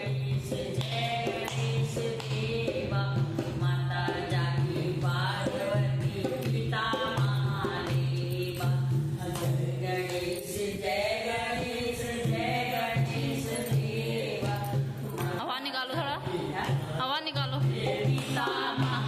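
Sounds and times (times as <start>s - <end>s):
barrel drum rhythm: 0.0s - 19.0s
women singing together: 0.0s - 19.0s
hand claps: 0.6s - 2.8s, 9.3s - 10.4s, 18.0s - 19.0s.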